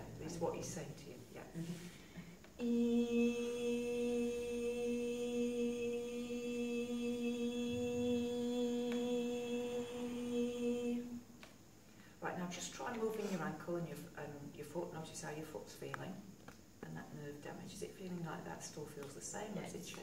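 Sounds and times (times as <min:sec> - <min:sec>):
woman singing a steady note: 0:02.6 - 0:11.4.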